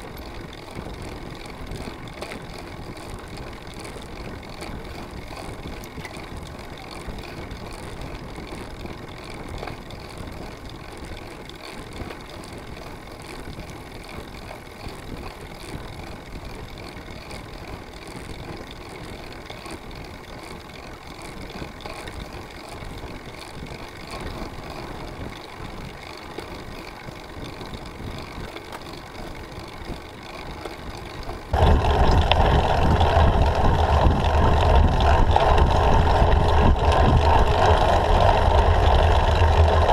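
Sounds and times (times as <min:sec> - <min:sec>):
wind and road noise: 0:00.0 - 0:39.9
heavy wind buffeting on camera: 0:31.0 - 0:39.9.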